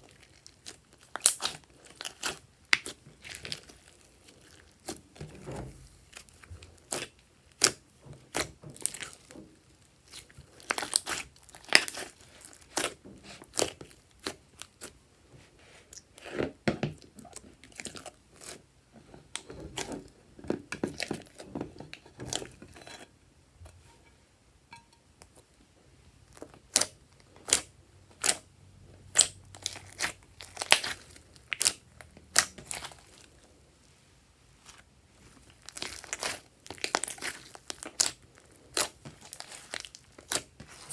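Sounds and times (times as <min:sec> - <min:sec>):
hands squishing slime: 0:00.0 - 0:15.0, 0:26.3 - 0:28.5, 0:29.1 - 0:33.4, 0:34.6 - 0:40.9.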